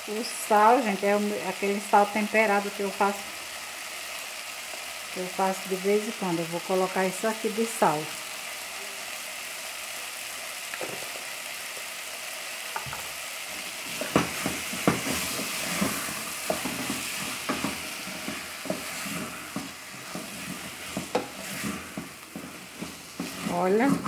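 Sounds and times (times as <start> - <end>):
vegetables sizzling in a pot: 0.0 - 24.0
wooden spoon scraping pot: 13.9 - 24.0.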